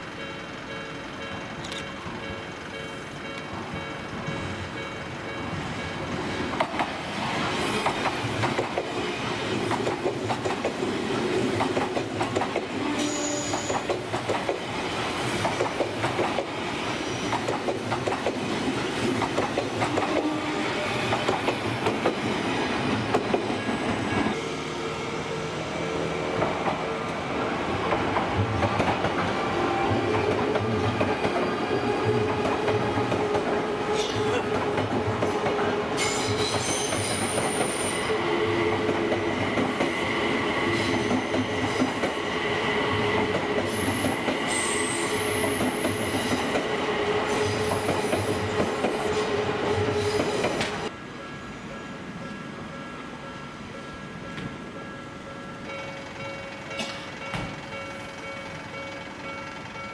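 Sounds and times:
train wheels clattering: 0.2 - 24.3, 27.8 - 50.9
wheel squeal: 13.0 - 13.9.

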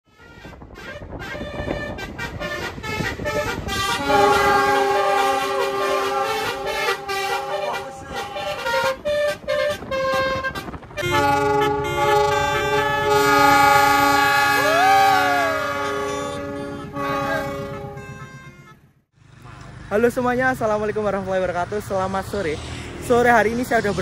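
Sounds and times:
loud horn chord: 0.1 - 18.9
multi-tone car horn chords: 0.1 - 19.0
locomotive rumble passing: 0.2 - 24.0.

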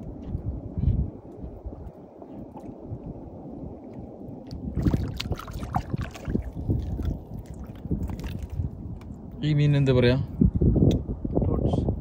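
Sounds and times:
water lapping against boat hull: 2.2 - 9.1
fish splashing: 4.6 - 8.6.

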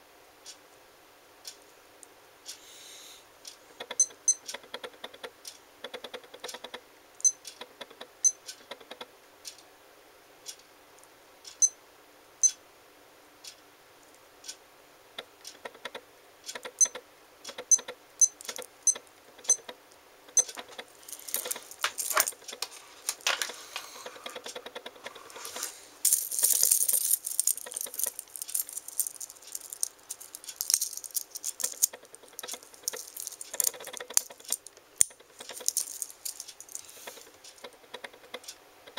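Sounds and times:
metal bracelet rattling: 20.4 - 22.7, 26.0 - 36.9.

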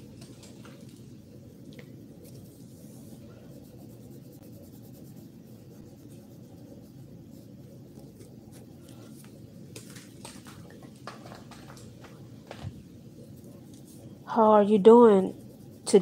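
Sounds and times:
steady low hum: 0.0 - 16.0
pencil scratching on paper: 2.2 - 8.8, 13.0 - 16.0.

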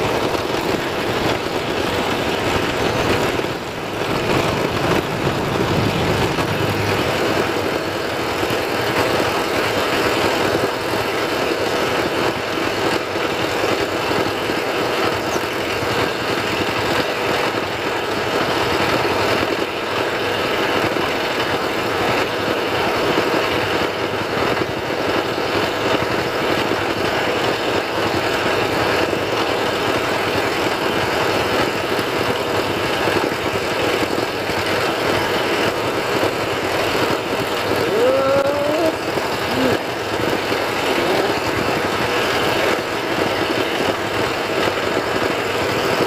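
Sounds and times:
motor humming: 0.0 - 8.4
dense rushing noise: 0.0 - 46.0.

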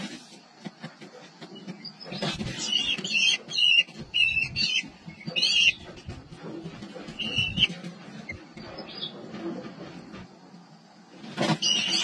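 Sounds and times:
kestrel calls: 1.9 - 6.1, 7.1 - 9.2.

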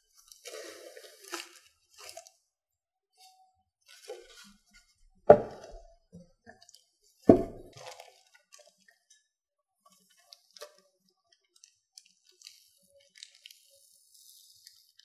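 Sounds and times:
heavy thuds on tabletop: 5.3 - 5.7, 7.3 - 7.7
plastic crinkling: 11.5 - 15.0.

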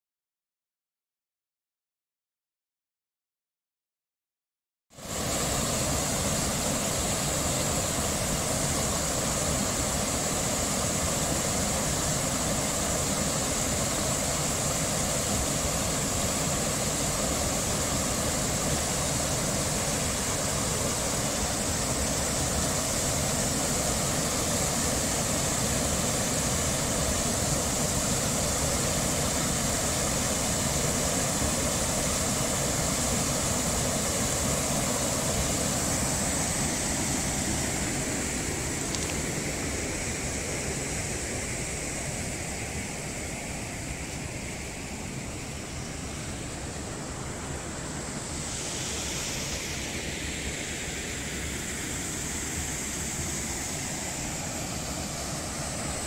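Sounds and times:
small waterfall pouring: 5.0 - 39.9.

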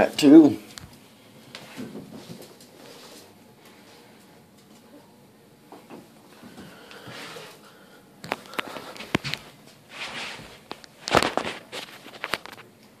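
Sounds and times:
puppy scuffling on tiled floor: 1.5 - 3.4, 8.2 - 12.7.

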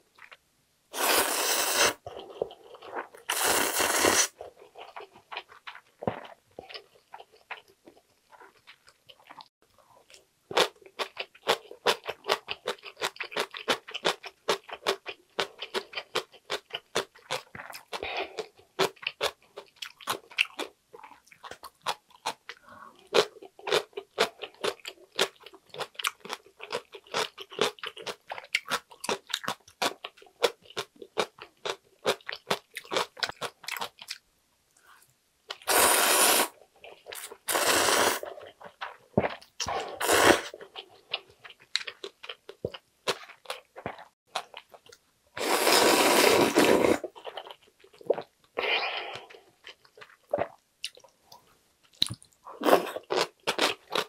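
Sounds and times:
slurping noodles: 1.0 - 2.1, 3.3 - 4.4, 35.7 - 36.5, 37.4 - 38.4, 39.6 - 40.6, 45.4 - 47.1.

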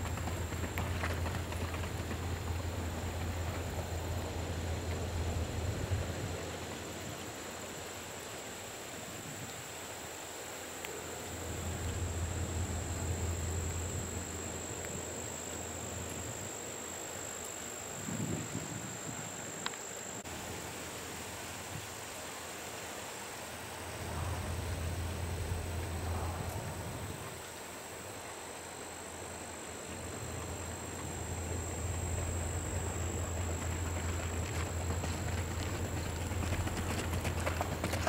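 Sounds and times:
insects chirring: 0.0 - 38.0.

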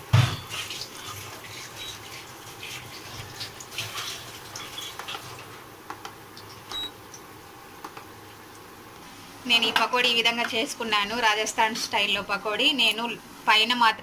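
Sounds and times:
oil sizzling while deep-frying: 0.0 - 7.4.

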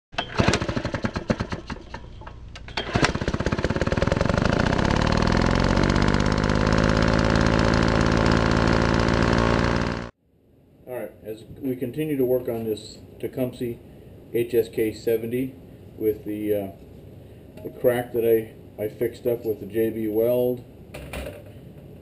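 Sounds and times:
engine sputtering and revving: 2.9 - 10.1.

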